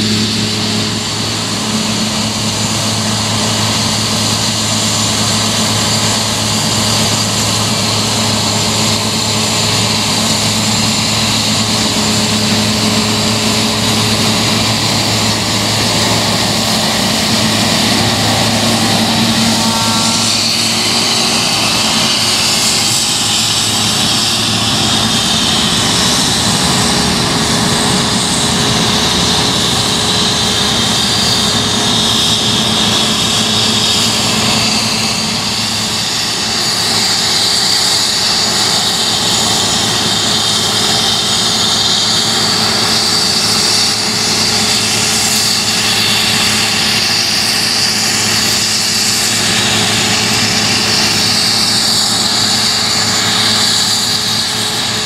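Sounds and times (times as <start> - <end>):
combine harvester running: 0.0 - 55.0
high machinery whine: 0.0 - 55.0.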